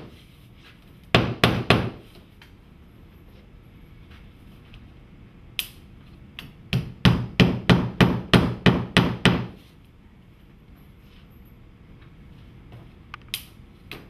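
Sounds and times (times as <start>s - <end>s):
hammer striking nails: 1.1s - 2.0s, 6.7s - 9.6s.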